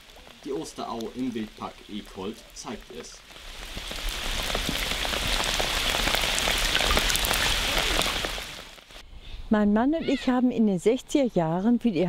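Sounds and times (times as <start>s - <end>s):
rain falling on a river: 0.0s - 9.0s.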